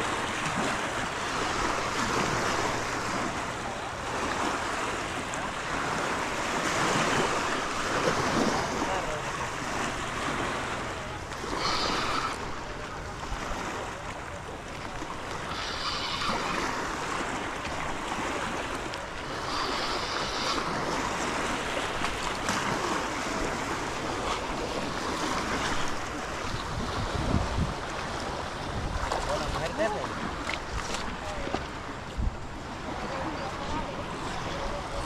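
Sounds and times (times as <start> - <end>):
waves washing on shore: 0.0 - 35.0
wind on microphone: 19.2 - 35.0.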